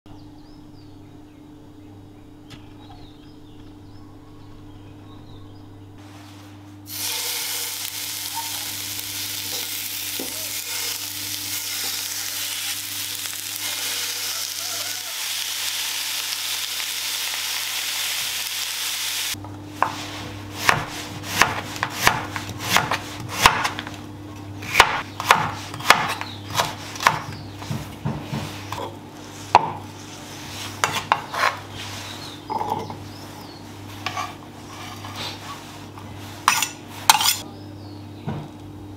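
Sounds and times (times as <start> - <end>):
steady low hum: 0.1 - 14.2
meat sizzling in a pan: 6.9 - 19.4
knife chopping on wooden board: 19.8 - 24.0, 24.6 - 28.8, 29.5 - 29.8.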